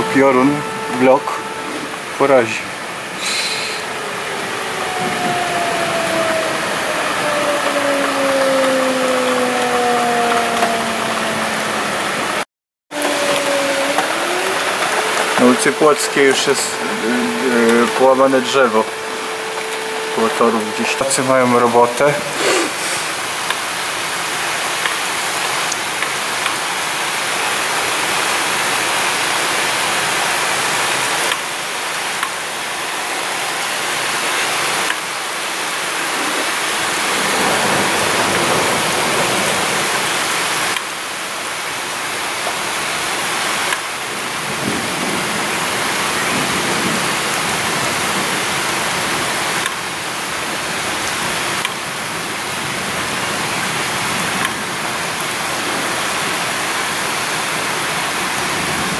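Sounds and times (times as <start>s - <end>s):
heavy rain hissing: 0.0s - 9.6s, 10.4s - 58.9s
low rumble of thunder: 4.3s - 11.5s, 37.0s - 40.2s.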